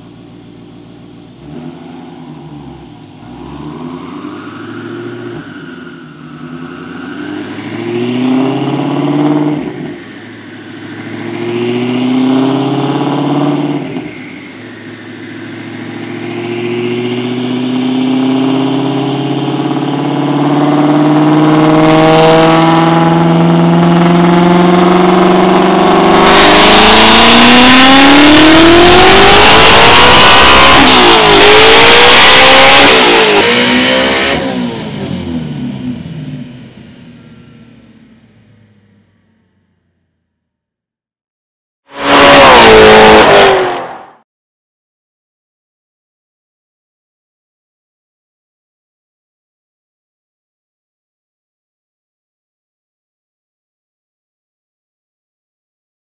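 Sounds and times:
car engine revving: 0:00.0 - 0:40.0, 0:41.9 - 0:44.2.

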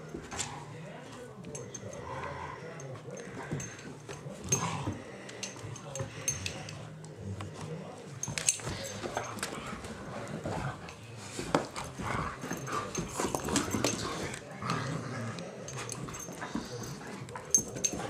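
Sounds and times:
dogs scuffling: 0:02.8 - 0:15.0.

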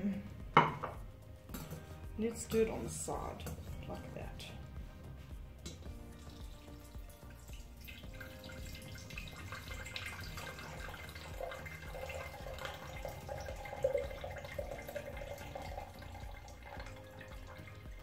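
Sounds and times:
liquid trickling through a colander: 0:01.5 - 0:18.0.

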